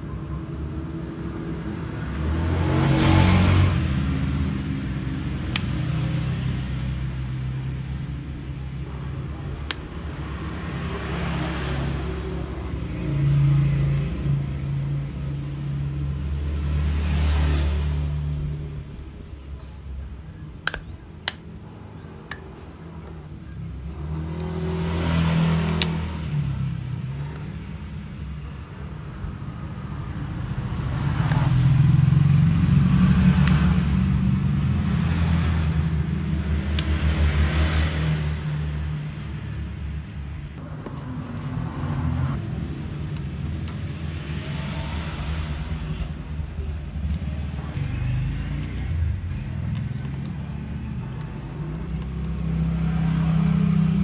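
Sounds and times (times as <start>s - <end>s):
passing road traffic rumble: 0.0s - 54.0s
plastic clips snapping: 5.4s - 6.0s, 9.5s - 10.0s, 20.6s - 21.6s.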